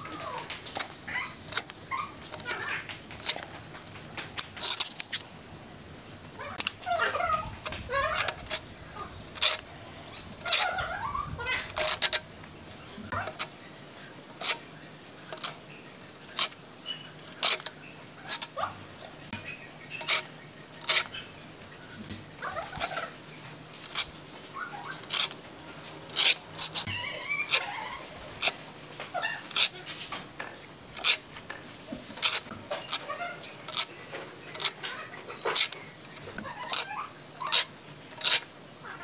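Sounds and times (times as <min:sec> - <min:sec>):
trowel scraping damp cement: 0:06.5 - 0:12.2, 0:14.4 - 0:14.7, 0:26.1 - 0:30.2, 0:31.0 - 0:33.1.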